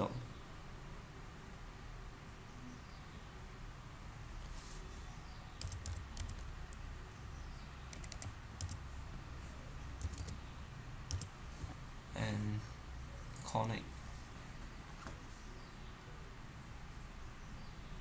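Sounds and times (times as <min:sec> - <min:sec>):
faint low hum: 0:00.0 - 0:18.0
typing on computer keyboard: 0:05.6 - 0:06.5, 0:07.9 - 0:08.8, 0:10.0 - 0:10.4, 0:11.1 - 0:11.3.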